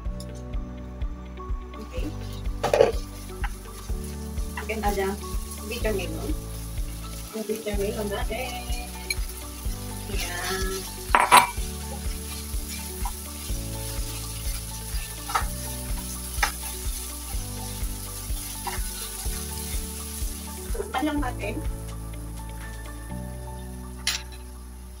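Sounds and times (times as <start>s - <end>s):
food sizzling in frying pan: 1.5s - 25.0s
glass lid clattering onto pan: 11.2s - 11.6s.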